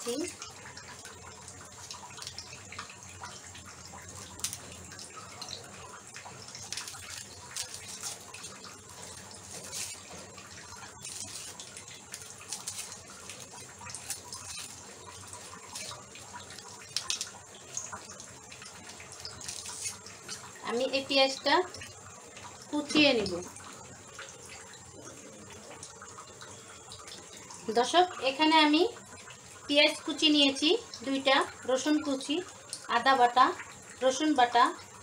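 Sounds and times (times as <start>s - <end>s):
dry onion skin crackling: 1.8s - 2.6s, 4.1s - 4.9s, 5.5s - 20.9s.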